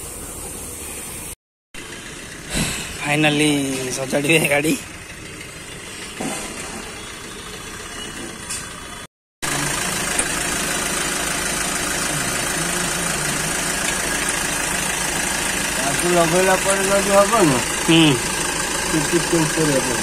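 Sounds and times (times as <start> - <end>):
open-air background: 0.0 - 20.0
vehicle engine idling: 0.0 - 20.0.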